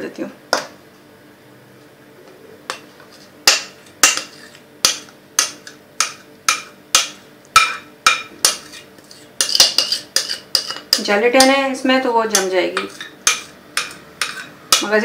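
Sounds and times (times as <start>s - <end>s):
utensil tapping mixing bowl: 9.4s - 11.6s, 12.3s - 15.0s.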